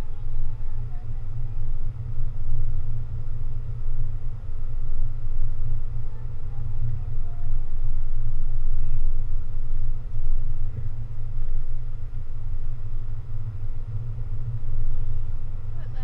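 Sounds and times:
road and engine rumble: 0.0s - 16.0s.

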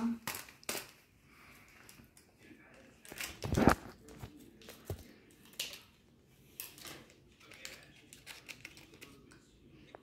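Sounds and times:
plastic packet crinkling: 0.1s - 1.0s, 2.8s - 4.8s, 6.6s - 9.4s.

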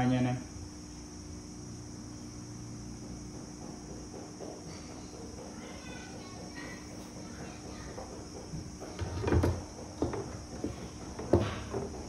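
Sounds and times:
hand tools knocking and clunking: 3.5s - 12.0s.

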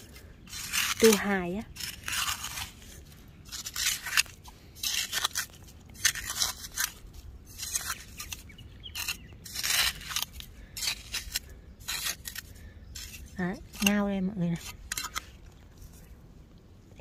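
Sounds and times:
metal trowel scraping through mud: 0.0s - 16.1s.

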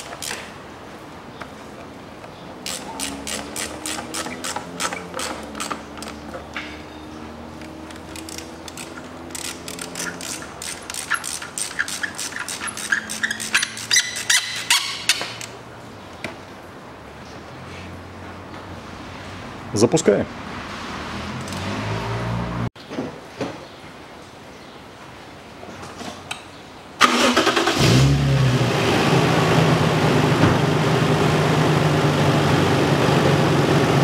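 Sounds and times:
hand ratchet clicking: 0.0s - 0.5s, 2.6s - 6.2s, 7.6s - 15.6s.

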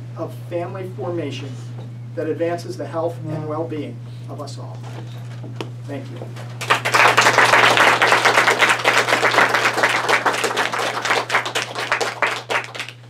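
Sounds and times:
audience applauding: 6.6s - 13.0s.

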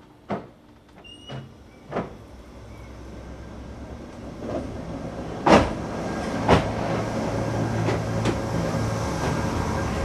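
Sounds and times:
railcar humming: 0.0s - 10.0s
wheels clunking on track joints: 4.1s - 10.0s.

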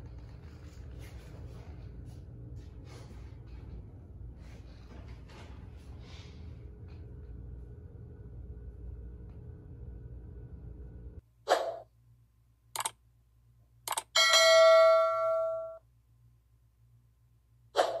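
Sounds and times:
steady low hum: 0.0s - 13.9s
bell chime ringing: 14.2s - 15.8s.

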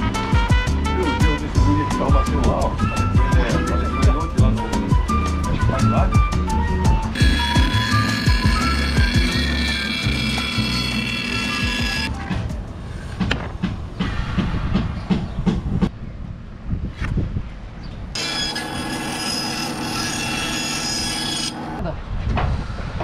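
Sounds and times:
band saw cutting plywood: 7.1s - 12.1s, 18.2s - 21.8s.

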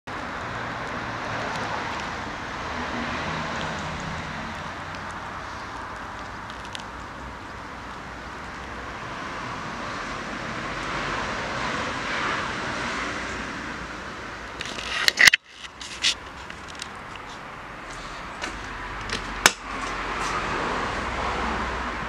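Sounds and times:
rushing background noise: 0.1s - 22.0s.

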